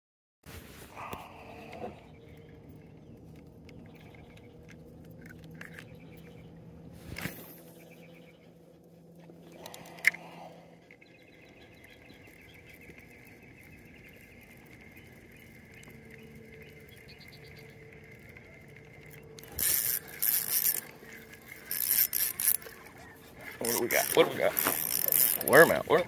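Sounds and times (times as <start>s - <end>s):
fishing reel rasping: 16.4s - 26.0s.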